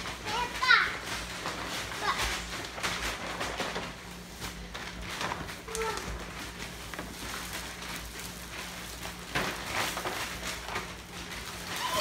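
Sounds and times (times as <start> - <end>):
plastic bags rustling: 0.0 - 12.0.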